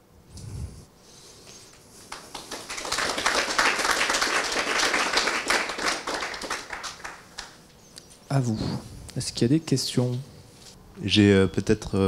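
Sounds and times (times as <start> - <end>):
audience applauding: 2.0 - 7.6.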